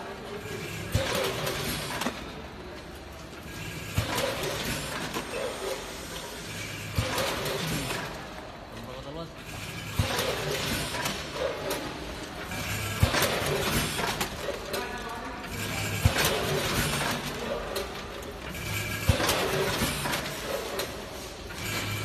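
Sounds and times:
sealing machine clack: 9.5 - 22.0.

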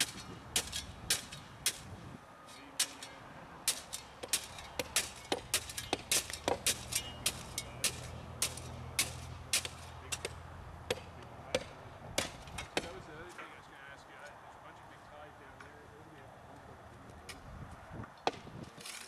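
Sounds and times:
shovel scraping gravel: 0.0 - 10.3, 18.7 - 19.0.

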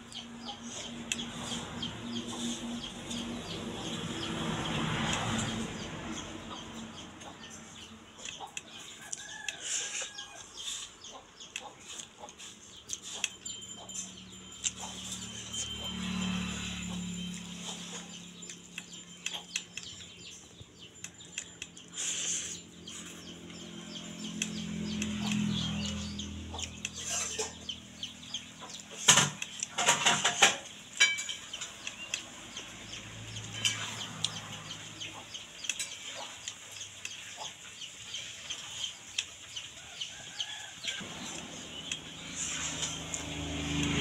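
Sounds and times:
chickens clucking: 0.1 - 44.0
person chewing food: 8.2 - 13.6.

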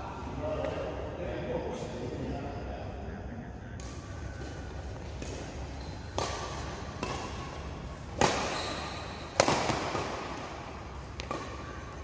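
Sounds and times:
badminton racket hitting shuttlecock: 5.0 - 12.0.

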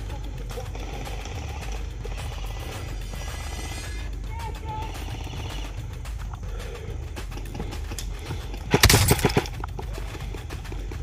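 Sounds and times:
airsoft gunfire: 8.7 - 9.6.

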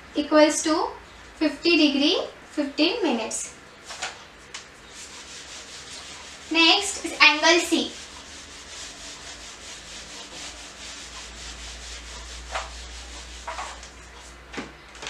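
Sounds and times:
duster rubbing whiteboard: 4.8 - 14.4.

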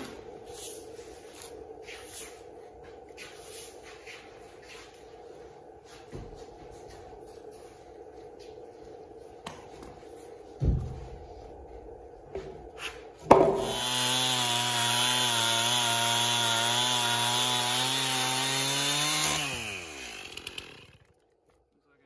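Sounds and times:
thump: 10.6 - 11.1
chainsaw cutting wood: 13.3 - 21.4.

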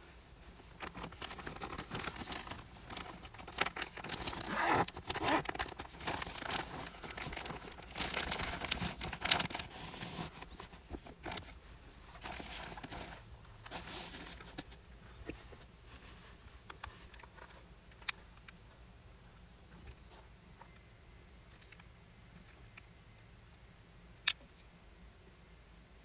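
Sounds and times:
blanket rustling and crinkling: 0.0 - 14.8.

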